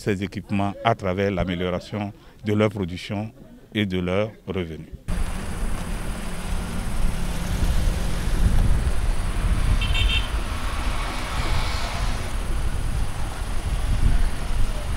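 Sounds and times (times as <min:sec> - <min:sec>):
vehicles driving past: 0:05.1 - 0:14.9
high beeping car horn: 0:09.7 - 0:10.4.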